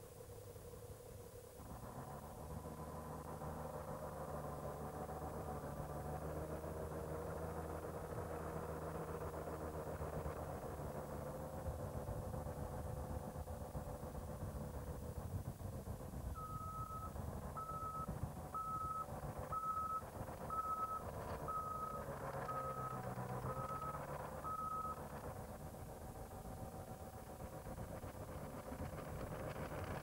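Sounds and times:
snowcat engine running: 0.0 - 30.0
reversing alarm beeps: 16.3 - 25.0.

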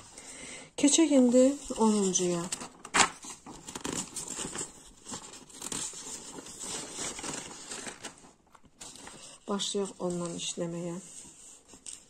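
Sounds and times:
paper rustling and crinkling: 1.1 - 12.0.

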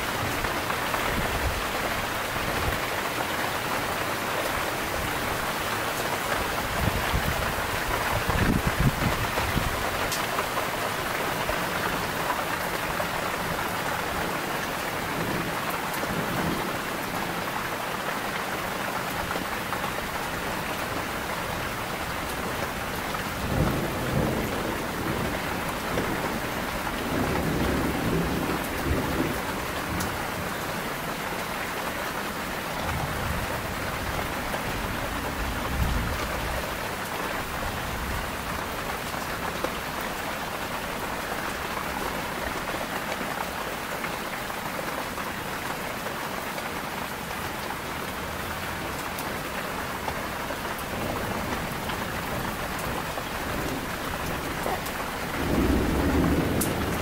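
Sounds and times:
heavy rain falling: 0.0 - 57.0
thunder rumbling: 22.5 - 30.4, 51.0 - 57.0.

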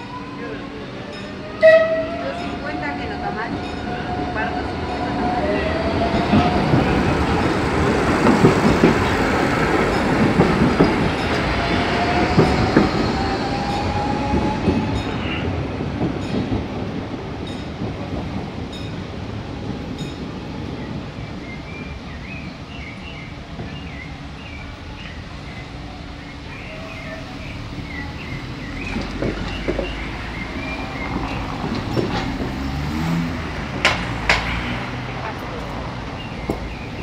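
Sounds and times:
light-rail train passing: 0.0 - 37.0
wheels clattering over rail joints: 0.9 - 20.8, 28.0 - 37.0.

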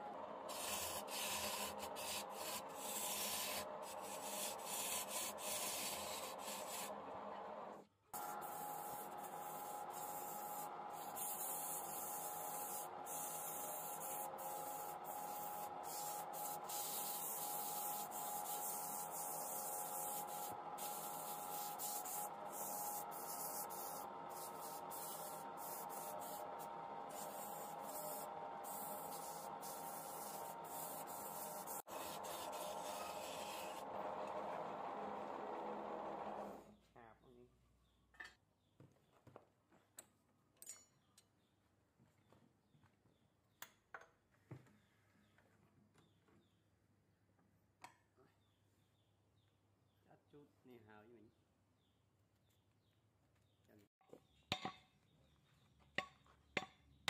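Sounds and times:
sandpaper rubbing spinning wood: 0.5 - 7.1, 8.2 - 34.1
wood lathe running hum: 17.3 - 36.6.

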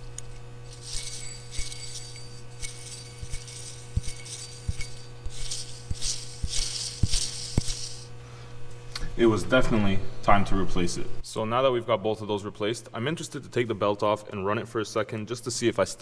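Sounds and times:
pulley bearing hissing rasp: 0.7 - 8.2.

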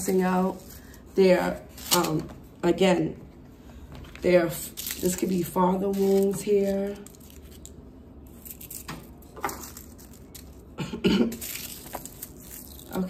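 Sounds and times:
woman coughing: 10.8 - 11.4.

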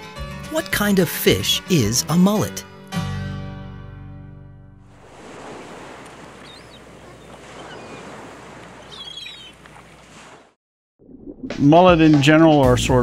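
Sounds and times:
lapping water: 5.0 - 10.5
bird chirps: 6.3 - 8.2, 8.8 - 9.8.

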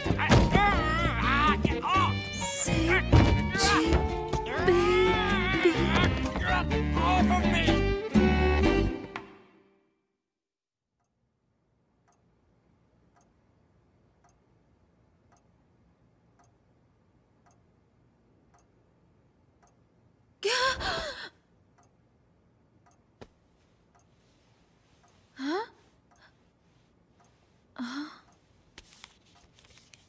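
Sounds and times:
clock ticking: 0.0 - 7.5, 12.0 - 12.4, 13.0 - 14.6, 15.2 - 20.2, 21.6 - 24.2, 25.0 - 26.4, 27.2 - 27.4, 28.2 - 28.4
girl vocal sound: 20.4 - 21.3, 25.4 - 25.8.

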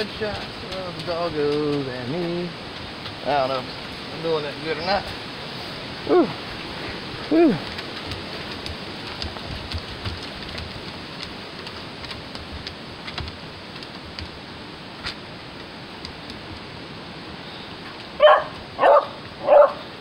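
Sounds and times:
steady hiss: 0.0 - 20.0
dog barking: 6.1 - 6.4, 18.2 - 19.8.

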